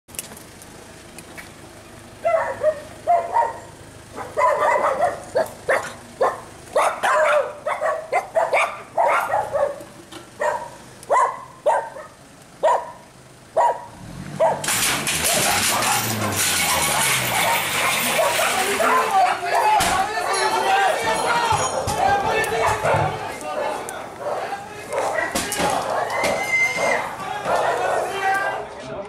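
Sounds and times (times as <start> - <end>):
dog barking: 2.2 - 13.0, 13.6 - 14.6, 17.3 - 19.8, 21.6 - 23.2, 24.2 - 28.2.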